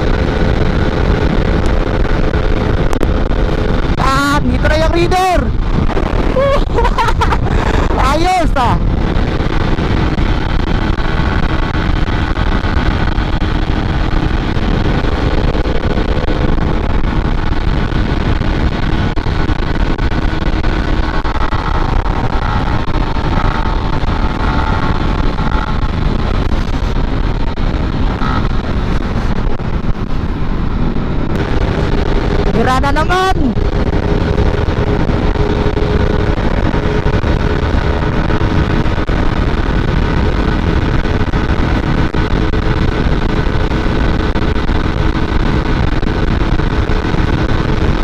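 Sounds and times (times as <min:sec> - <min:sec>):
motorcycle engine running: 0:00.0 - 0:48.0
wind noise on microphone: 0:00.0 - 0:48.0.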